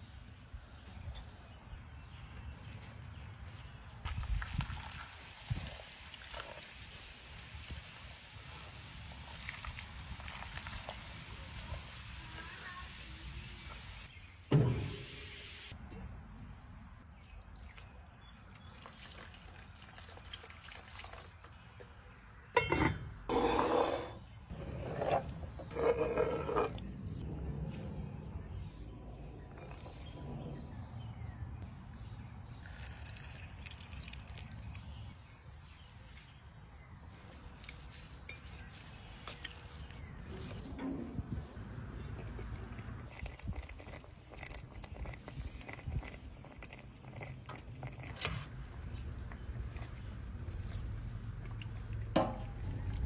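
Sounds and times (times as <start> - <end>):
liquid pouring and trickling: 4.1 - 12.2, 17.2 - 21.6, 32.6 - 35.2, 41.5 - 53.0.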